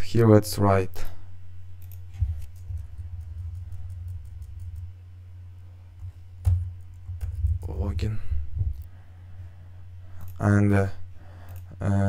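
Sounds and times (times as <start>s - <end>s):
low electrical hum: 0.0s - 12.0s
keyboard and mouse clicks: 1.8s - 4.9s.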